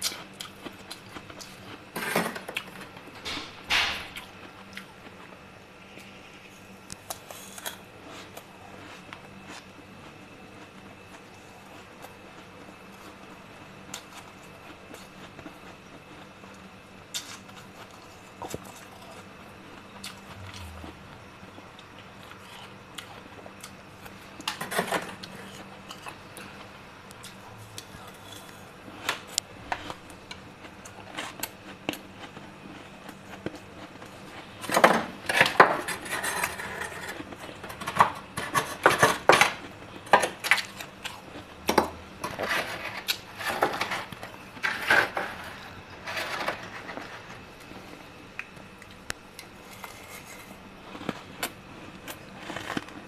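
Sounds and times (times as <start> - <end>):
metal spoon scraping freezer frost: 35.3 - 39.3, 42.2 - 47.4.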